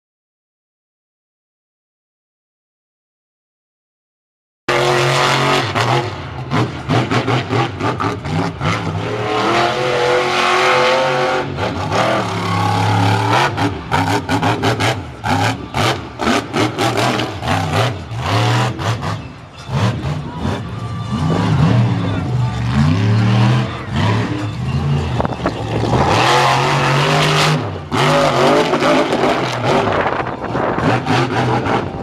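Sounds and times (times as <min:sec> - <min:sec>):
truck engine revving: 0:04.7 - 0:32.0.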